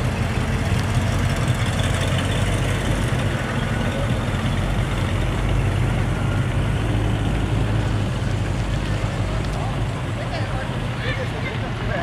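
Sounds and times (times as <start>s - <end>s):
cars driving slowly past: 0.0s - 12.0s.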